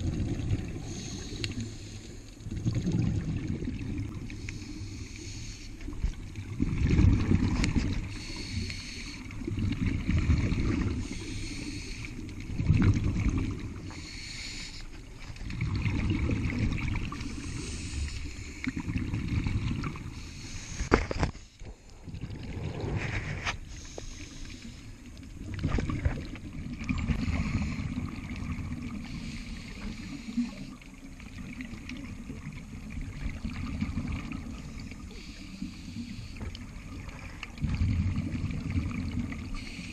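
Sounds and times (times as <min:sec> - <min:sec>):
bubbles rumbling and gurgling: 0:00.0 - 0:05.1, 0:05.8 - 0:14.2, 0:14.9 - 0:39.9.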